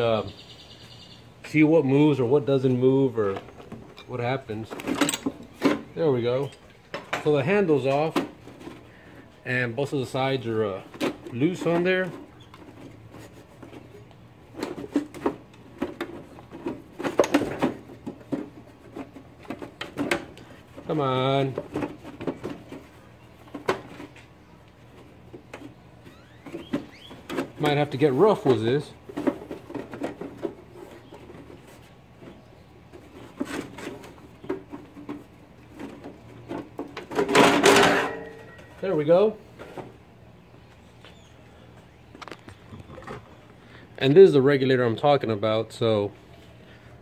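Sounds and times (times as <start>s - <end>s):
metal cover scraping: 25.0s - 39.9s
faint squeaks: 26.0s - 28.8s
sheet metal cover rattling: 33.0s - 38.8s.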